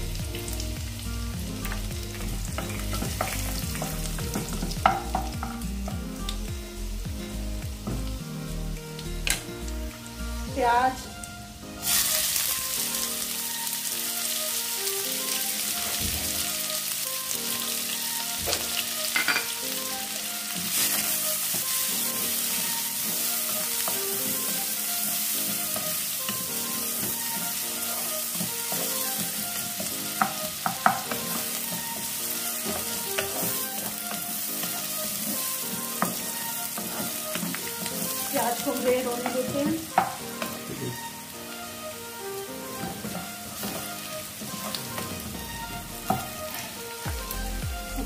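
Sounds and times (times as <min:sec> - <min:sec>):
onions sizzling in a pan: 0:00.0 - 0:48.0
spatula stirring: 0:25.0 - 0:40.6, 0:42.7 - 0:45.4.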